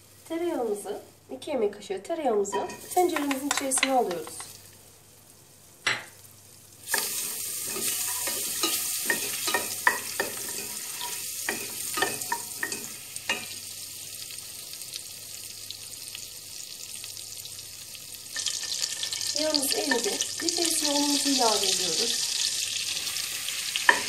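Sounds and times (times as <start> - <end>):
butter sizzling in a pot: 2.4 - 24.0
wooden spoon scraping a pot: 6.9 - 12.9.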